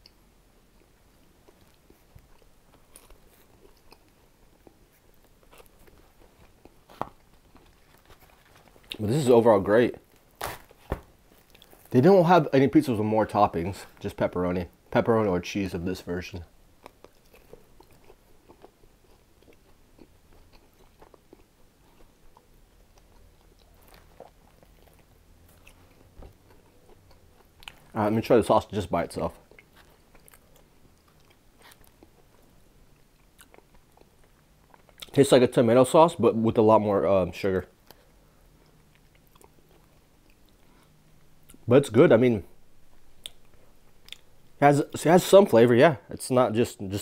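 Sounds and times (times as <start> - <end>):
biting and chewing pizza: 0.8 - 9.3, 10.0 - 12.1, 16.8 - 35.2.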